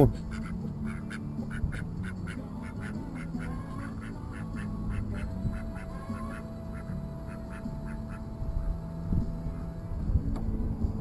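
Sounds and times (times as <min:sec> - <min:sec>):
ducks quacking: 0:00.0 - 0:08.3
low steady hum: 0:00.0 - 0:11.0.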